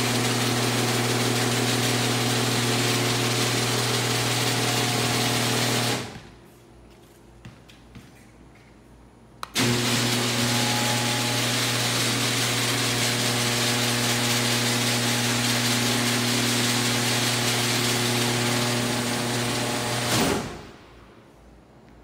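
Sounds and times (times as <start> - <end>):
garage door opener motor running: 0.0 - 6.2, 9.5 - 20.7.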